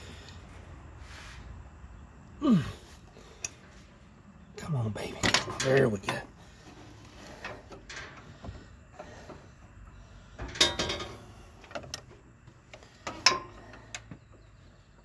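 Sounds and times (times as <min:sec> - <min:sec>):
hand tools clicking and clunking: 0:04.6 - 0:14.6
metal parts rattling: 0:05.0 - 0:08.3, 0:10.4 - 0:12.0.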